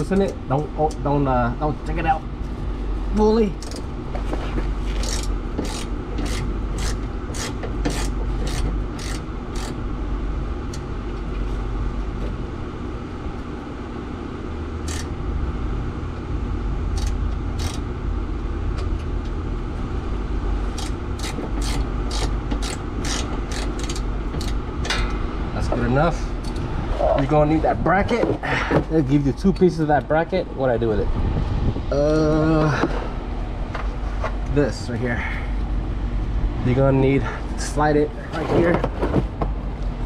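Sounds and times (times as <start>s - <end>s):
steady low rumble: 0.0s - 40.0s
socket ratchet clicking: 5.0s - 9.8s, 14.8s - 15.1s, 17.0s - 17.8s, 20.7s - 24.6s.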